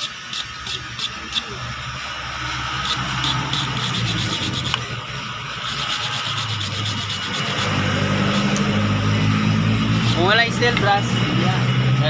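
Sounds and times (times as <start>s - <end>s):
wire brush scrubbing metal: 0.0s - 1.5s, 2.5s - 4.8s, 5.6s - 8.9s, 9.9s - 10.4s.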